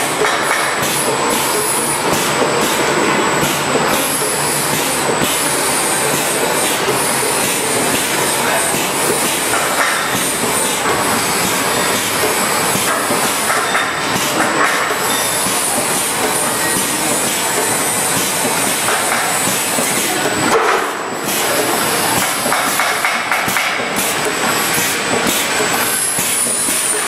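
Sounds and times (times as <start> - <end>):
machinery clatter and hiss: 0.0 - 27.0
high machine squeals: 14.8 - 18.7, 25.7 - 27.0.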